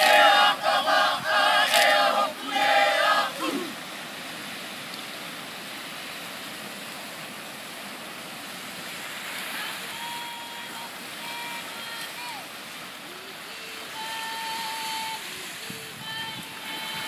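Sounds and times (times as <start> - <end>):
group of voices chanting: 0.0 - 3.8
surf breaking on shore: 0.0 - 17.0.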